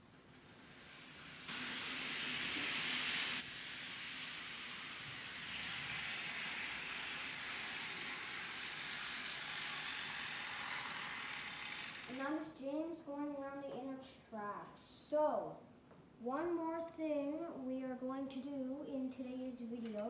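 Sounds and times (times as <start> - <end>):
model train motor whirring: 0.3 - 12.3.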